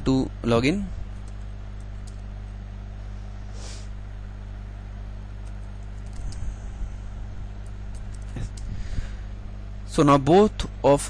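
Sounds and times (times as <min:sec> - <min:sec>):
low electrical hum: 0:00.0 - 0:11.0
computer keyboard clicks: 0:01.2 - 0:02.2, 0:05.4 - 0:06.4, 0:07.6 - 0:08.7
brief hiss: 0:03.5 - 0:03.9.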